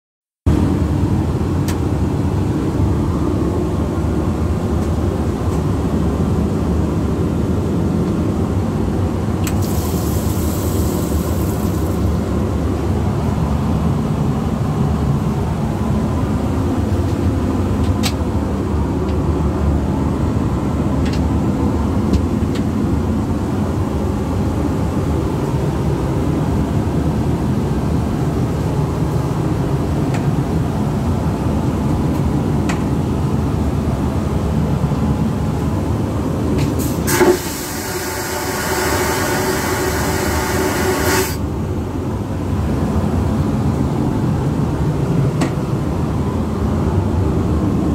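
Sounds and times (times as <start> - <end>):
airplane engine and airflow drone: 0.5 - 47.9
brief hiss: 36.8 - 41.4.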